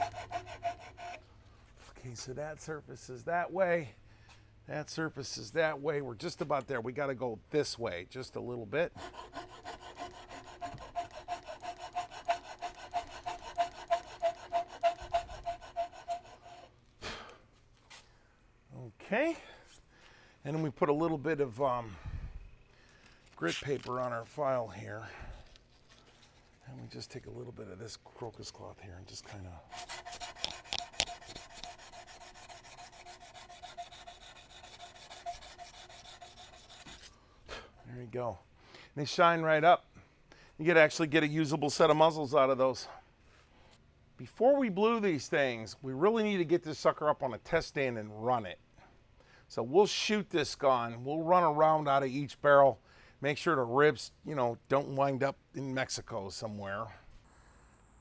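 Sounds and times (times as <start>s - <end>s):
hand file stroking steel: 0.0s - 1.2s, 8.9s - 16.7s, 29.7s - 37.2s
cloth rubbing on steel: 29.7s - 37.2s.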